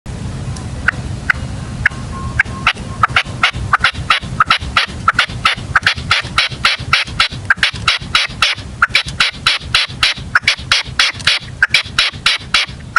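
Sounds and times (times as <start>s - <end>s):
partridge calling: 0.8s - 12.9s.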